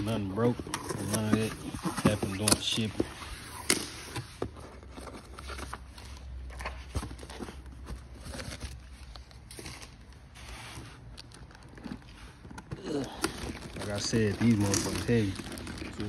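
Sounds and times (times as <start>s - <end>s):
cardboard box being opened: 0.0s - 10.0s, 11.5s - 16.0s.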